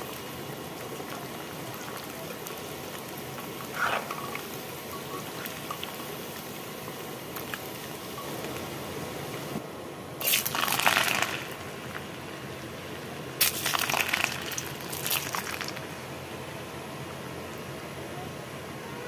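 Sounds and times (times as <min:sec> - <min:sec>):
fish sizzling in hot oil: 0:00.0 - 0:09.5, 0:10.2 - 0:11.9, 0:13.4 - 0:16.0.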